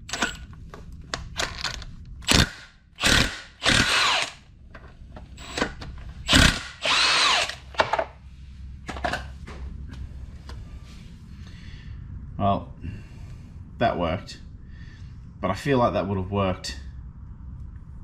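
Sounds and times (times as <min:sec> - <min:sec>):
impact wrench bursts: 0:00.0 - 0:00.5, 0:02.2 - 0:04.4, 0:05.4 - 0:07.9.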